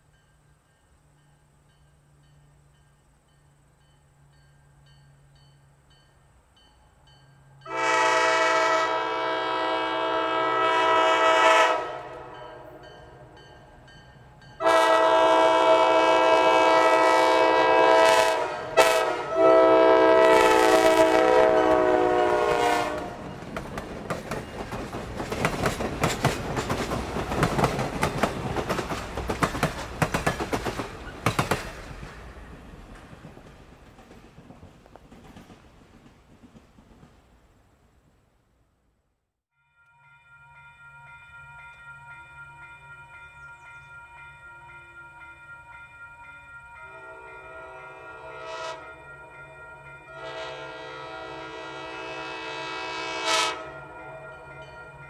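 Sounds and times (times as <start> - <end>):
locomotive air horn: 7.7 - 12.8, 14.6 - 23.3, 46.9 - 49.0, 50.1 - 54.0
train wheels clattering over rail joints: 23.3 - 37.2.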